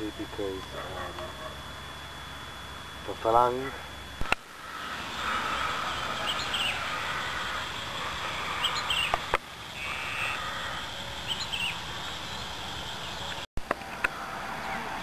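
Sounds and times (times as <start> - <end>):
insects droning: 0.0 - 15.0
bird chirping: 4.6 - 13.4.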